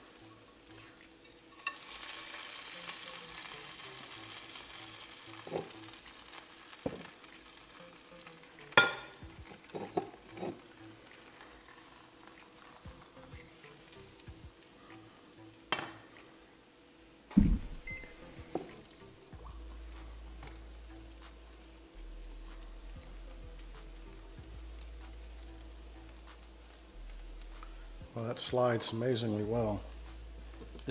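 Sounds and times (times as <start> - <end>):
cheese sizzling in a frying pan: 0.0 - 30.9
spatula scraping a pan: 9.4 - 12.5.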